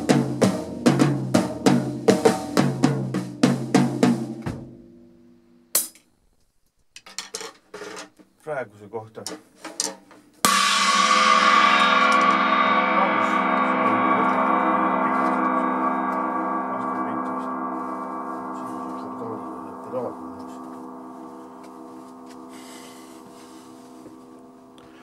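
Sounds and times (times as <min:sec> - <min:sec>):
cymbal ringing out: 0:10.4 - 0:25.0.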